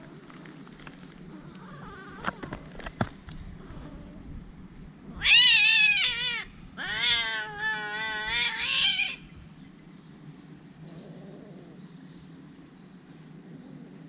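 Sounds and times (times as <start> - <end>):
cat meowing: 5.2 - 9.2.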